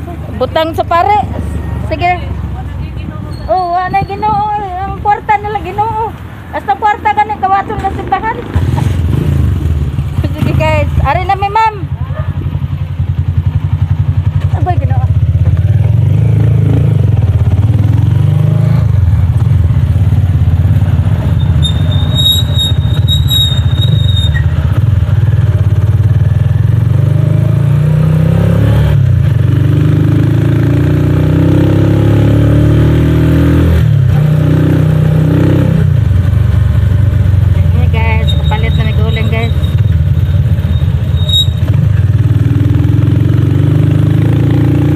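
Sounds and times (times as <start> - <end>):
motorcycle engine running: 0.0 - 44.9
high squeal: 21.3 - 24.6, 38.2 - 41.8.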